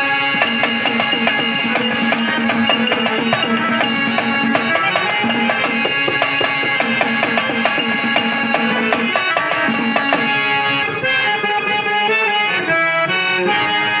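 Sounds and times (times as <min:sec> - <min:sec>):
hand drum strokes: 0:00.4 - 0:10.4.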